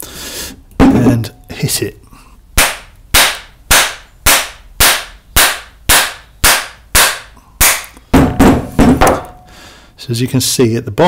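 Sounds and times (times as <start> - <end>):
mallet striking metal pin: 2.6 - 9.5.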